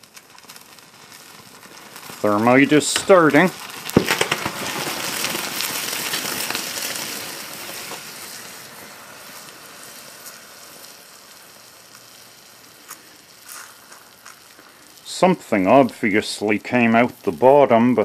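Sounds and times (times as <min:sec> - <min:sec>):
faint pops: 0:00.0 - 0:08.6
thermite hissing and crackling: 0:00.0 - 0:18.0.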